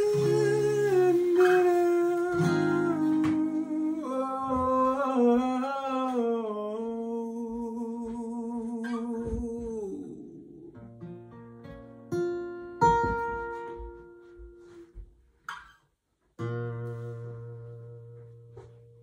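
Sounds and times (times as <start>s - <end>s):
man humming a melody: 0.0s - 10.9s
acoustic guitar notes: 0.0s - 19.0s.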